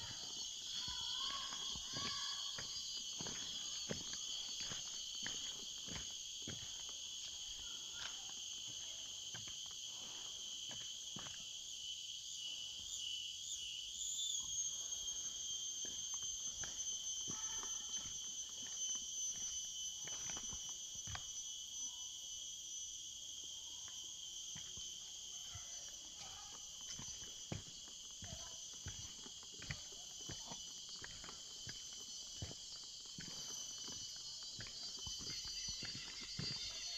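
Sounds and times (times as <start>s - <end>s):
footsteps on forest floor: 0.0s - 11.4s, 26.2s - 36.9s
high-pitched insect chorus: 0.0s - 36.9s.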